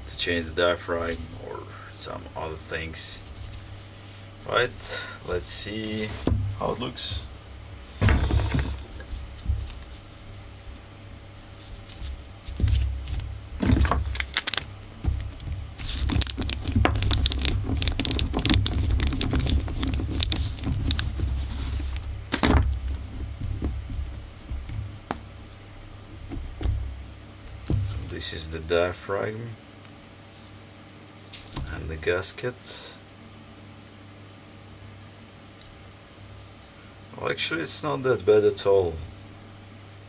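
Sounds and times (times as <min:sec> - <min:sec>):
work gloves rustling: 0:00.0 - 0:28.4, 0:29.5 - 0:31.8.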